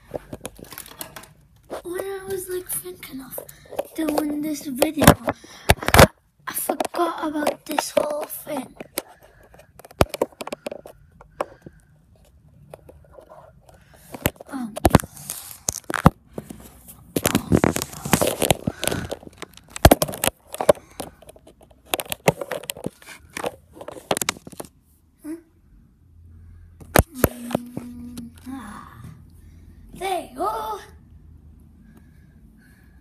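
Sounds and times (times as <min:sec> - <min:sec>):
crinkly rustling: 0:00.0 - 0:06.1, 0:12.7 - 0:24.8.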